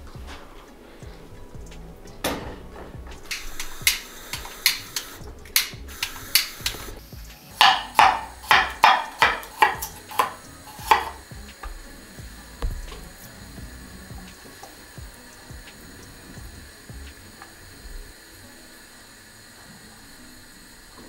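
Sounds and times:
utensil knocking: 1.6s - 18.0s.

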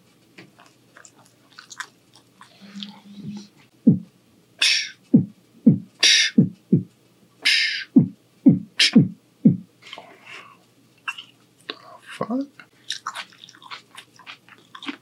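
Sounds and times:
beatboxing kick thumps: 3.2s - 6.9s, 7.5s - 9.7s
beatboxing hissing snare: 4.6s - 5.0s, 6.0s - 9.2s.

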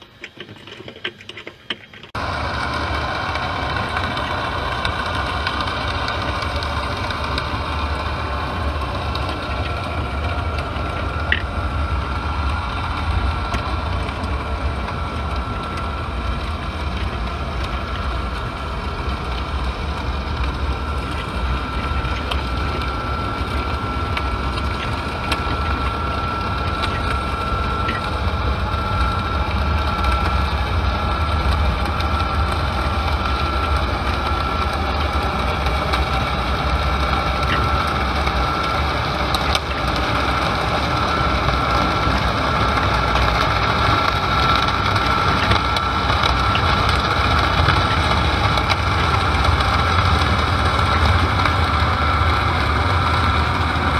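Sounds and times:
scattered clicks: 3.3s - 53.9s.

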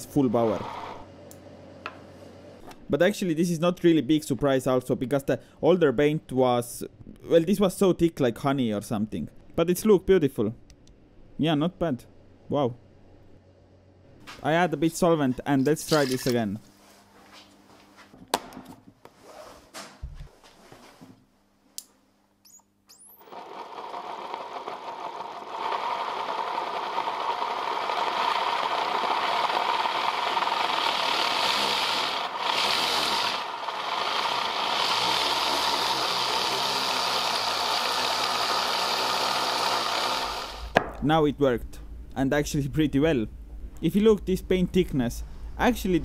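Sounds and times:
small motor whirring: 0.4s - 1.1s, 22.9s - 40.8s.

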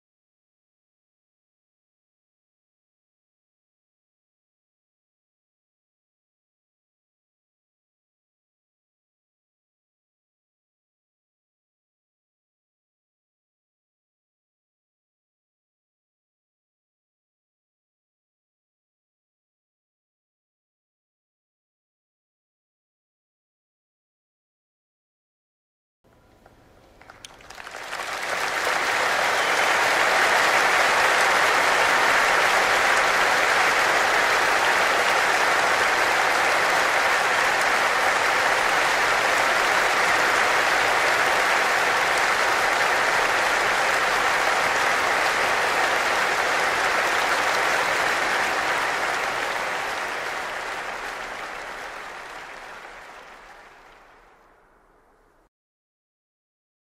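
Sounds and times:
audience applauding: 26.9s - 54.6s.

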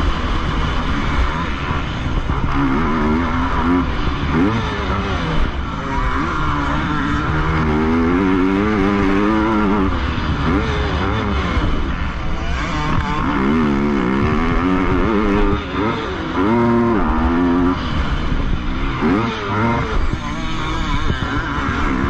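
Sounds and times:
motorbike engine revving: 0.0s - 22.0s.

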